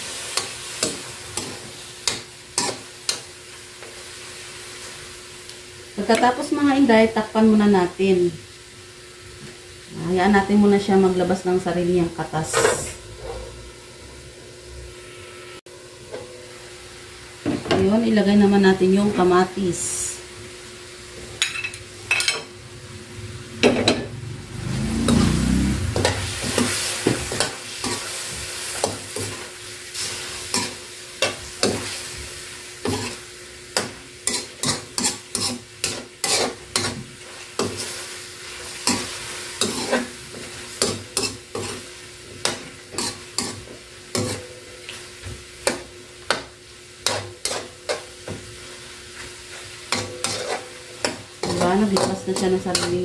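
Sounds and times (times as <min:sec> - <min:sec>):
frying sizzle: 0:00.0 - 0:53.0
metal spatula scraping wok: 0:23.6 - 0:32.1, 0:33.8 - 0:44.5, 0:47.0 - 0:48.1, 0:49.6 - 0:53.0.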